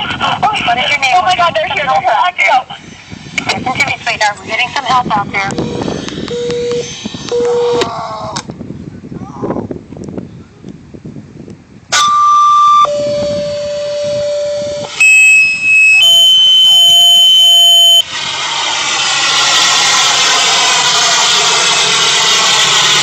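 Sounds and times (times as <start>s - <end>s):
two-tone paging alerts: 15.0s - 18.0s.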